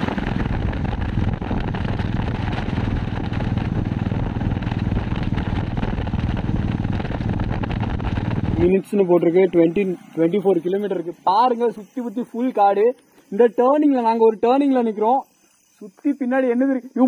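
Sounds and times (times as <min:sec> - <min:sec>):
motorcycle engine cruising: 0:00.0 - 0:11.3
constant rushing noise: 0:00.0 - 0:17.0.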